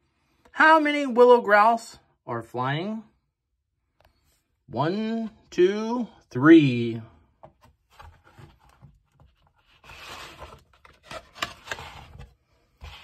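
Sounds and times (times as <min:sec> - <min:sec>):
page rustling scrape: 0:07.9 - 0:13.0.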